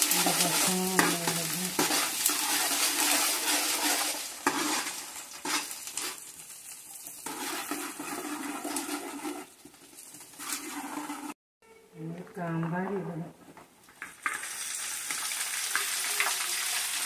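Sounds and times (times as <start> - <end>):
hot oil sizzling and bubbling: 0.0 - 11.4, 13.9 - 17.0
spoon scraping metal pot: 0.1 - 6.2, 7.2 - 9.6, 10.3 - 11.4.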